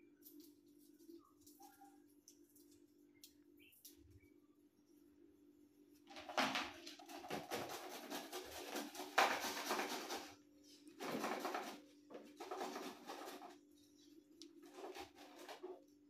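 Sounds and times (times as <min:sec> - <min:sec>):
grating on a hand grater: 0:07.0 - 0:10.4, 0:11.0 - 0:13.6, 0:14.6 - 0:15.8.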